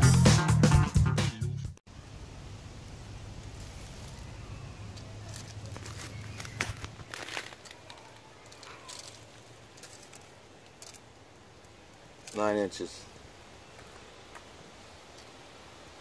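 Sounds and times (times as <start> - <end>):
handling clicks and crackles: 4.9 - 14.5.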